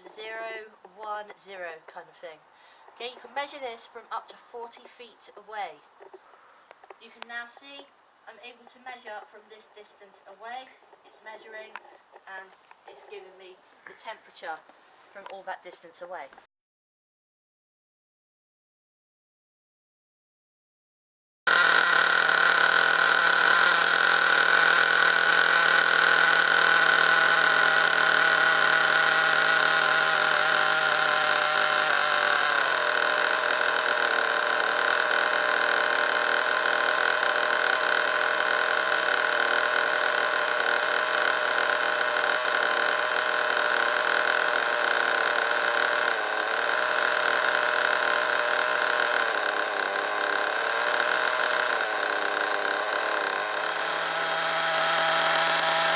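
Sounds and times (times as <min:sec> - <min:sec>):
small nitro engine idling: 0:21.5 - 0:55.9.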